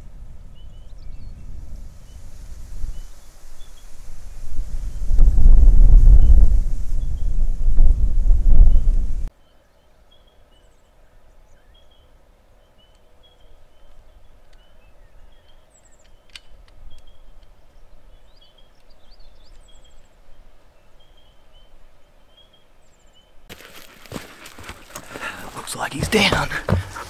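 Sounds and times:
birds chirping and trilling: 8.7 - 23.4, 24.1 - 27.0.

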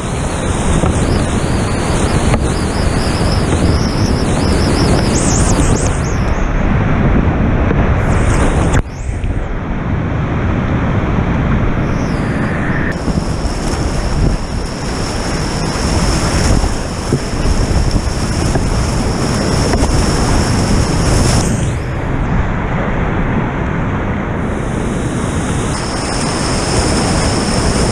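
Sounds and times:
whitewater rapids rushing: 12.9 - 22.1, 24.5 - 27.9.

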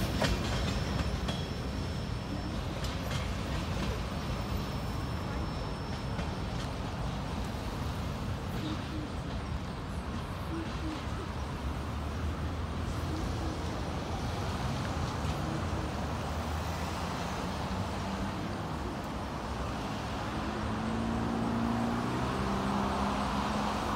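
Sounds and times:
low traffic rumble: 0.0 - 23.9
cars passing close by: 11.5 - 23.9.

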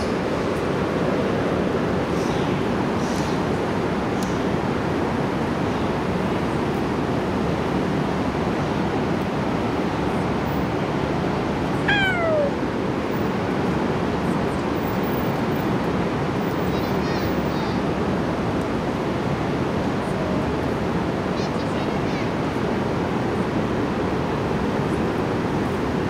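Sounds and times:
cat meowing: 11.9 - 12.6.

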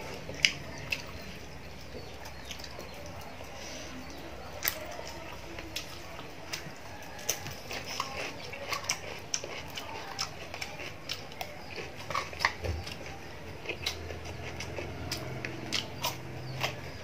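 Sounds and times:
person crunching vegetable: 4.6 - 17.0.

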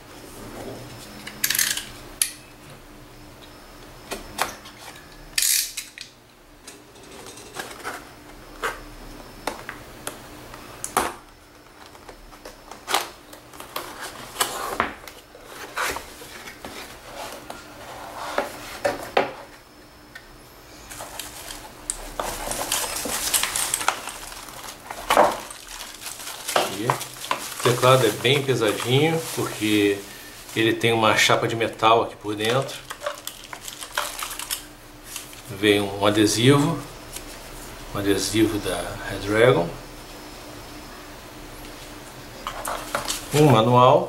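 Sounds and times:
foam wrapping rustling: 20.9 - 35.8.

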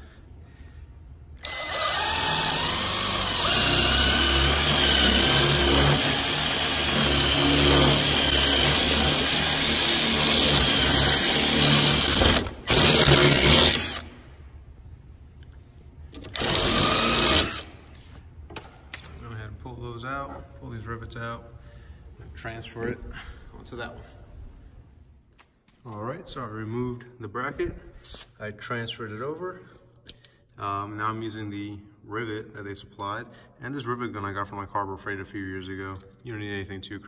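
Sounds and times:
cordless drill drilling metal: 1.4 - 14.1, 16.2 - 17.7.

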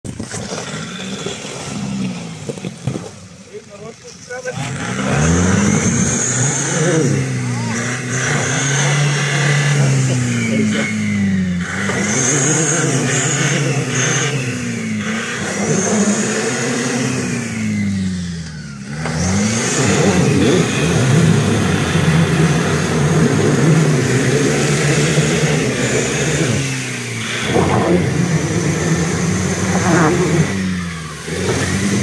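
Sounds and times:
diesel engine revving: 0.0 - 32.0
tyres spinning in mud: 0.1 - 10.7
mud and water churning: 0.1 - 17.4, 19.4 - 32.0.

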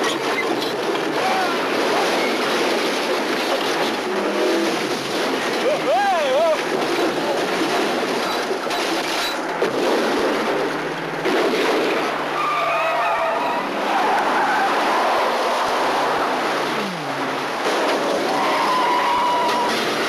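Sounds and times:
car tires skidding: 10.4 - 20.0
wavering tire squeal: 12.3 - 16.2, 18.3 - 19.8.

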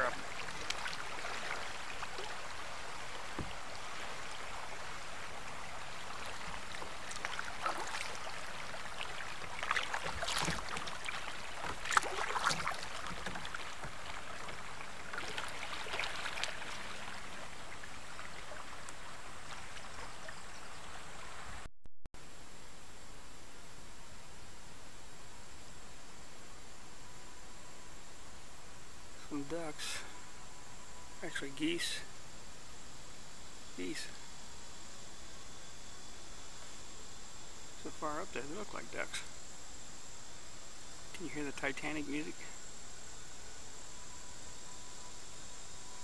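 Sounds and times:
paddle splashes and drips: 0.0 - 21.6
river current rippling and splashing: 0.0 - 21.7.

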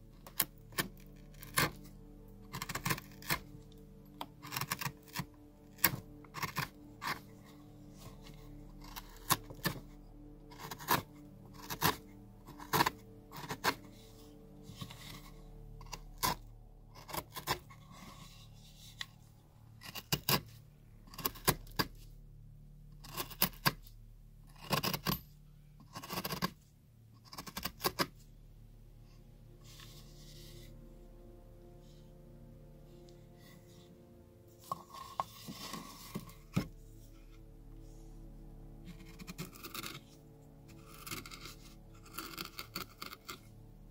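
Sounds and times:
knife cutting bark: 2.5 - 7.4, 38.9 - 40.1, 40.7 - 43.4.

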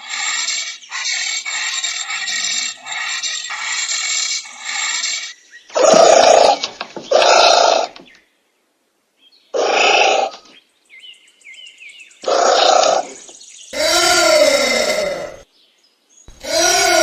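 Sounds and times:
anteater harsh calls: 0.0 - 8.0, 9.6 - 10.4, 12.2 - 15.4, 16.3 - 17.0.

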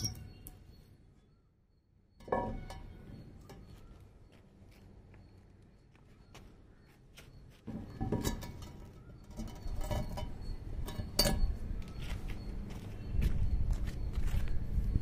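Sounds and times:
glass rumbling on concrete: 0.0 - 0.3
glass clinks and knocks: 0.0 - 0.4, 2.2 - 3.2, 7.7 - 11.6.

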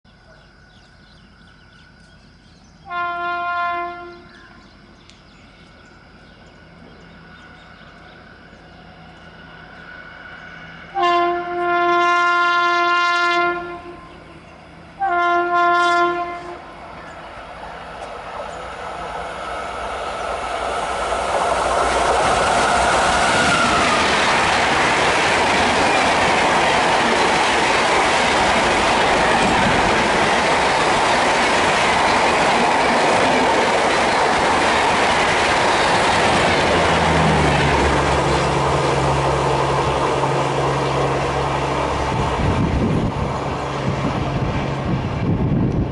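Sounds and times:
train passing with clickety-clack: 0.5 - 45.9
locomotive horn blasts: 2.9 - 4.4, 10.9 - 14.2, 15.0 - 16.7.

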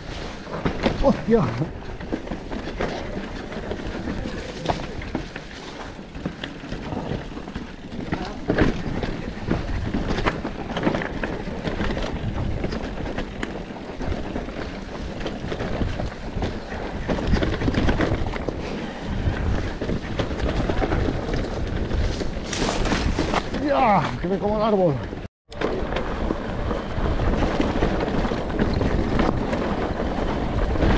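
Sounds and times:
tyre noise over dirt: 0.0 - 14.8, 15.4 - 24.4
bike knocking and rattling: 0.0 - 30.9
wind on microphone: 14.9 - 23.6.

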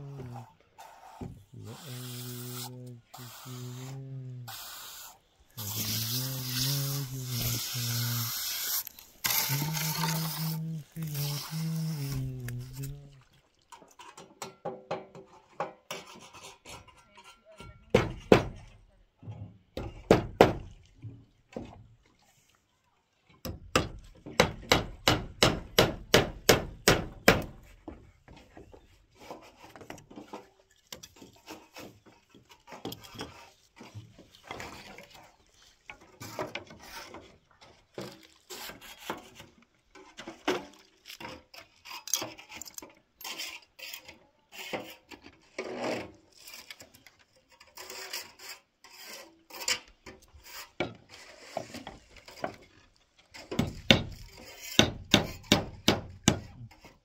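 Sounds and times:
irregular knocking and scraping: 5.6 - 13.0, 13.8 - 20.2, 23.8 - 57.0.

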